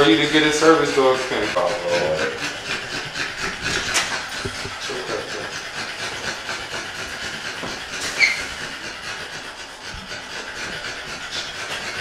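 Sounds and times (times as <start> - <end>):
high squeak: 8.0 - 8.5.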